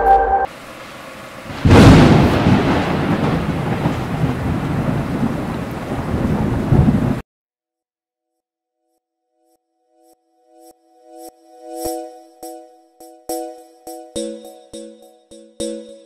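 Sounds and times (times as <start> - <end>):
rain: 0.5 - 7.2
rumbling thunder: 0.9 - 7.2
loud thunderclap: 1.4 - 7.2.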